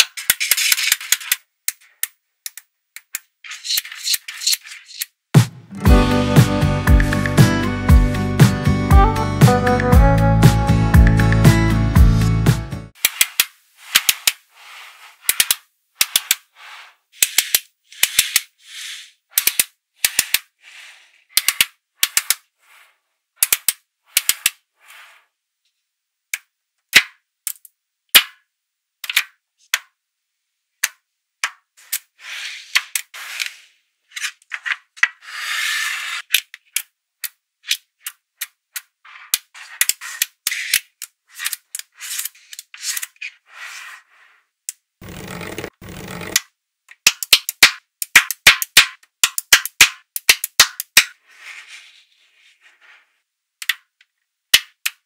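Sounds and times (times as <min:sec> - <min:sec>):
magnetic balls rattling: 0:00.0 - 0:05.1
magnetic balls clicking together: 0:00.0 - 0:05.2, 0:17.2 - 0:18.5, 0:19.3 - 0:20.5, 0:21.3 - 0:22.5, 0:23.4 - 0:24.6, 0:44.7 - 0:51.2, 0:53.6 - 0:55.0.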